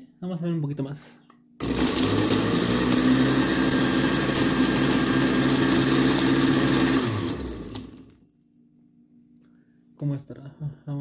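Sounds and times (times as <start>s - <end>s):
blender grinding ice: 1.6s - 8.2s.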